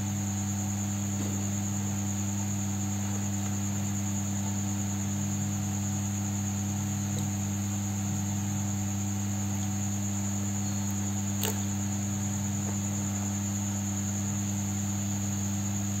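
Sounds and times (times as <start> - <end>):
sharp click: 11.4 - 11.7.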